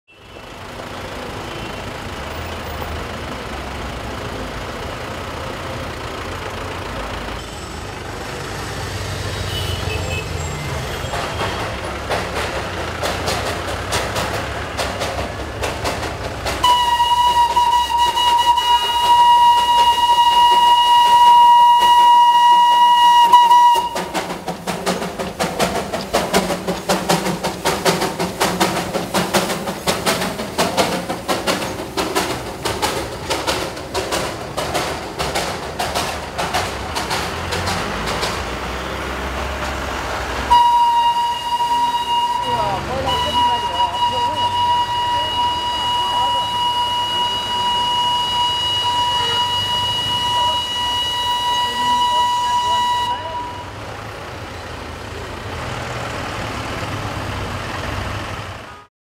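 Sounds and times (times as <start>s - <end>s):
steam locomotive chuffing: 0.1s - 58.9s
steam whistle blast: 16.6s - 25.0s, 40.5s - 53.8s.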